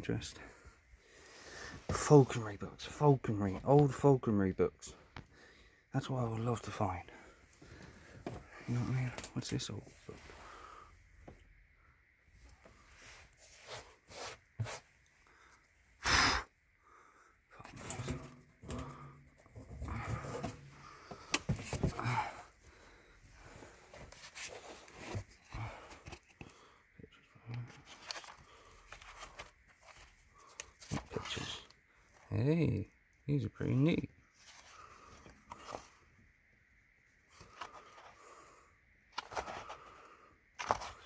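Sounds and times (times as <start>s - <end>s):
hands rummaging through books: 17.6s - 22.8s, 23.5s - 26.6s, 27.6s - 32.3s, 34.3s - 36.1s, 37.3s - 38.3s, 39.1s - 40.0s, 40.6s - 41.0s.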